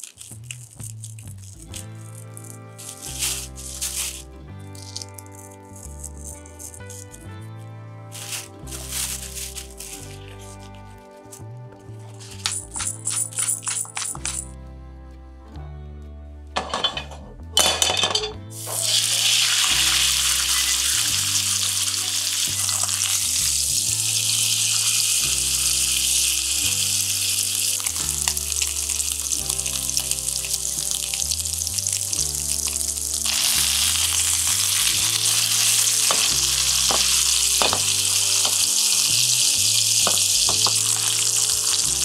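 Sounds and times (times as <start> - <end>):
soft background music: 0.0 - 42.0
steaks sizzling in a frying pan: 18.6 - 42.0.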